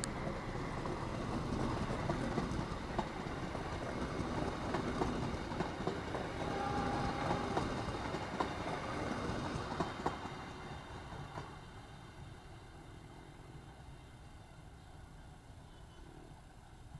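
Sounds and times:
train wheels clacking on rails: 0.0 - 13.2.

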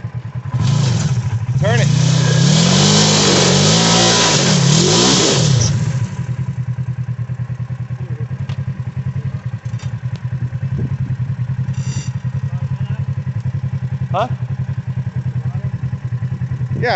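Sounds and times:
engine idling: 0.0 - 2.6, 5.5 - 16.9
engine revving: 0.0 - 7.0.

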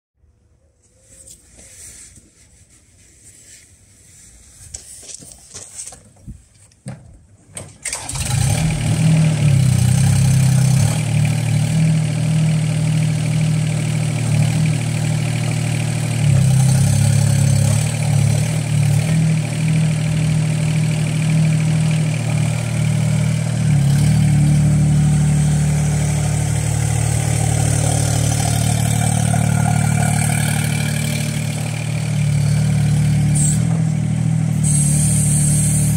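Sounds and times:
diesel engine running: 7.8 - 35.9.

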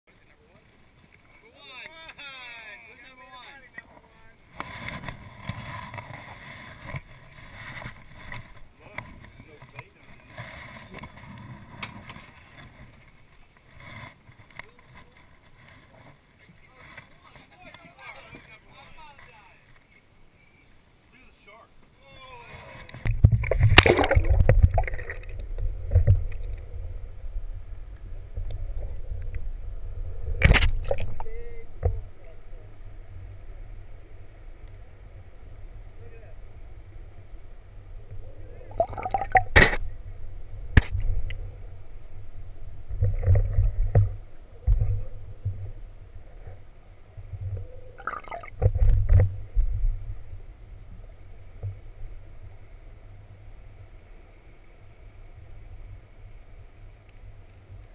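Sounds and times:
muffled underwater rumbling: 22.5 - 54.1
muffled swishes and bubbling: 22.6 - 35.4, 36.3 - 52.6.

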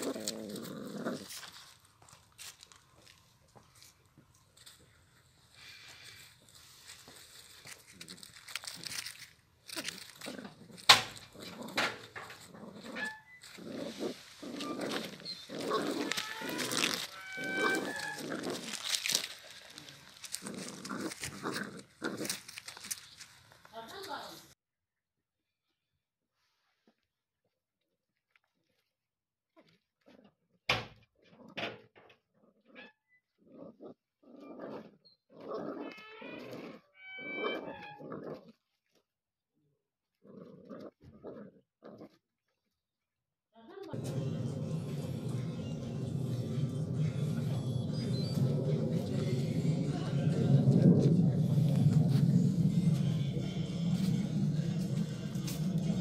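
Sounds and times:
puppies growling: 0.0 - 1.9, 9.7 - 23.0, 32.3 - 38.6, 40.1 - 42.2, 43.9 - 56.0
puppies scuffling in dry leaves: 5.6 - 10.3, 13.3 - 24.1
puppies yipping and whining: 13.0 - 18.7, 34.4 - 38.1, 47.4 - 49.0.

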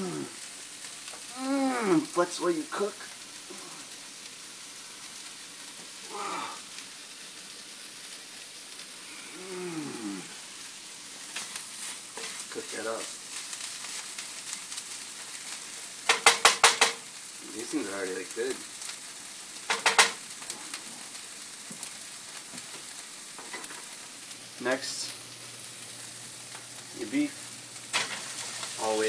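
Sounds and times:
vegetables sizzling in a frying pan: 0.0 - 29.0.

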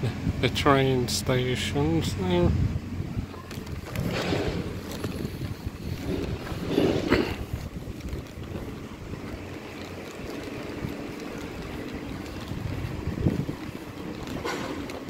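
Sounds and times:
wind buffeting microphone: 1.7 - 15.0.

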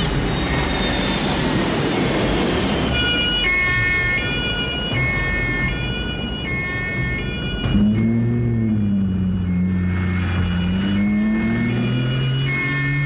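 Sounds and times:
traffic noise: 0.0 - 13.0
two-tone siren: 0.0 - 13.0.

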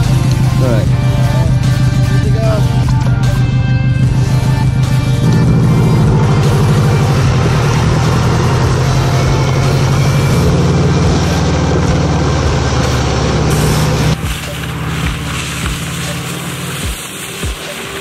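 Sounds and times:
car engine running: 0.0 - 18.0
sled sliding on wet asphalt: 4.1 - 18.0.

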